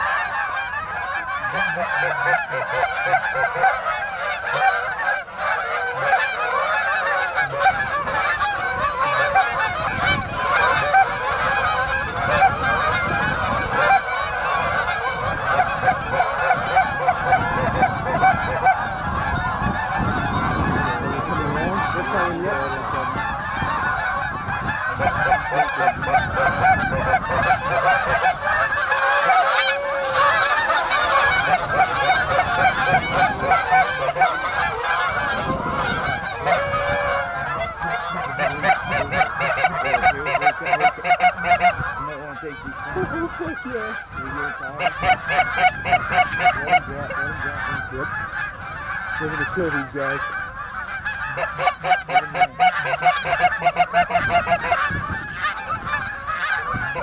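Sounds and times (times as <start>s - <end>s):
flock of geese honking: 0.0s - 57.0s.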